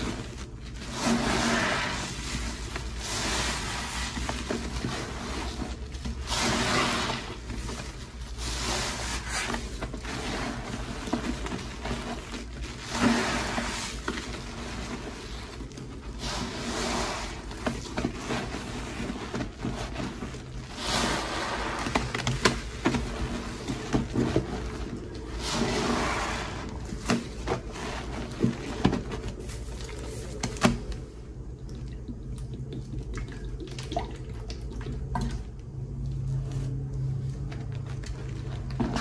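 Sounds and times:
sponge squishing in foam: 0.0s - 30.9s.

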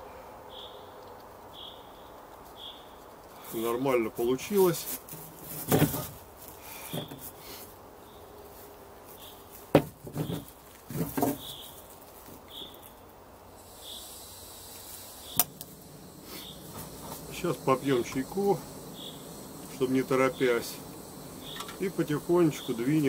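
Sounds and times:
sharp clicks: 15.2s - 19.8s, 20.4s - 21.9s.

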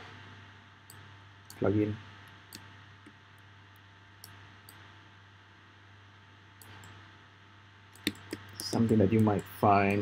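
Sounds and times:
low hum and hiss: 0.0s - 10.0s
computer mouse clicks: 2.5s - 3.2s, 4.2s - 4.9s, 6.6s - 7.0s, 7.9s - 9.6s.

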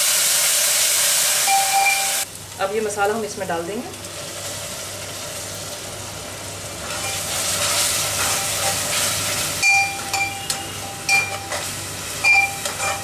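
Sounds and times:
paste sizzling in hot oil: 0.0s - 2.3s, 4.2s - 13.0s
metal spoon clanking on pot: 9.6s - 13.0s.

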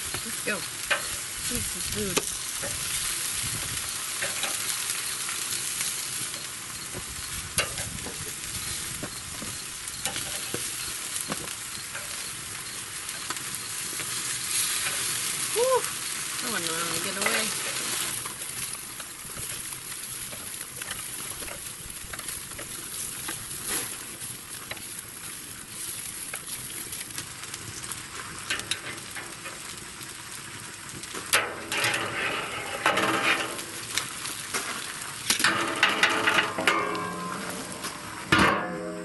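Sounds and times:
chicken sizzling on a grate: 0.0s - 39.0s
metal clanks and scrapes: 0.8s - 1.3s, 4.2s - 4.7s, 28.5s - 29.7s, 31.2s - 39.0s.

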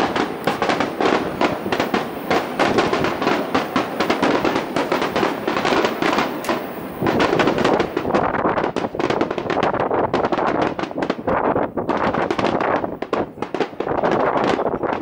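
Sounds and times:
firework shells bursting: 0.0s - 15.0s.

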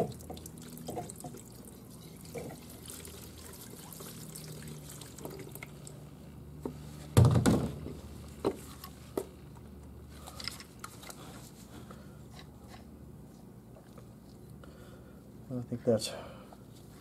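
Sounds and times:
solvent pouring and dripping: 0.0s - 6.1s
low steady hum: 0.0s - 17.0s.

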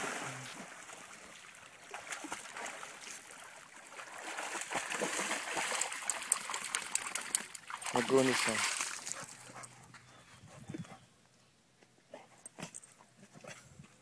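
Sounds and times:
dog splashing in water: 1.8s - 9.7s.

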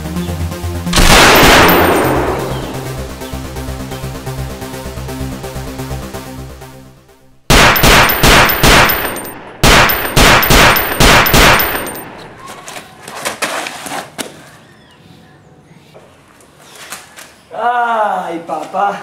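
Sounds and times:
handgun shots: 1.0s - 2.8s, 7.5s - 12.3s.

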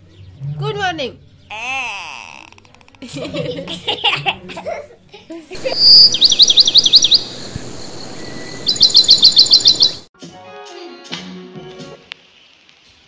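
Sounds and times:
quiet music: 0.0s - 5.6s
bird chirping: 5.6s - 10.1s.

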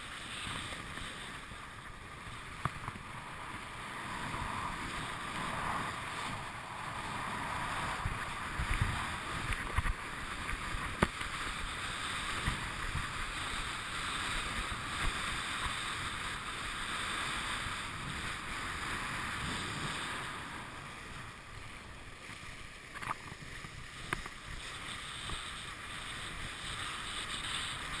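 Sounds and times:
water rushing: 0.0s - 28.0s
wind buffeting microphone: 2.8s - 15.9s.

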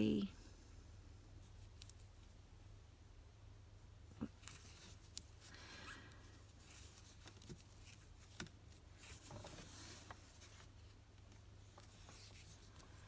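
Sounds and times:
faint rustling: 3.7s - 13.0s.

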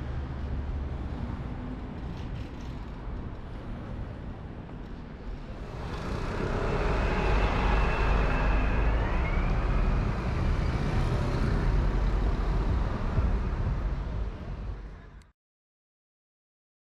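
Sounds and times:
vehicle passing: 5.4s - 14.3s
faint high whine: 5.5s - 11.5s.

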